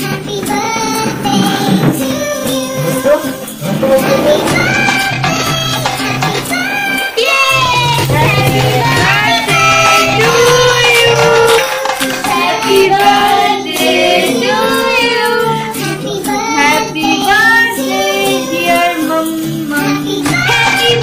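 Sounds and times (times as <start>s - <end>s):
song with sung melody: 0.0s - 21.0s.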